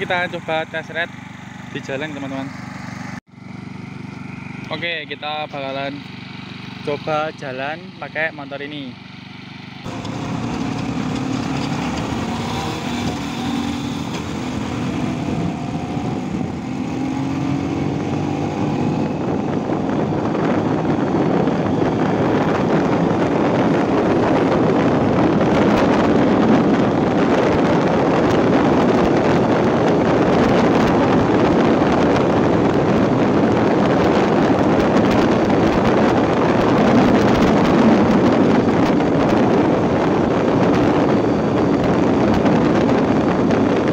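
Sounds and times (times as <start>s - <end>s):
scooter engine accelerating: 0.0s - 7.2s, 8.8s - 43.9s
wind rush on microphone: 9.8s - 43.9s.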